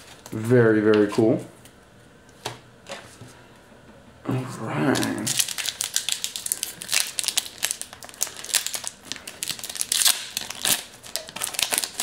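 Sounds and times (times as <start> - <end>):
foil wrapper tearing and crinkling: 5.0 - 12.0.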